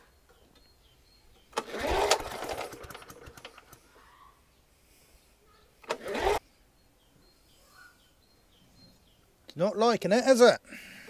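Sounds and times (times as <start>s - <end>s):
lawnmower engine pull-start whirring: 1.3s - 4.0s, 5.8s - 6.4s.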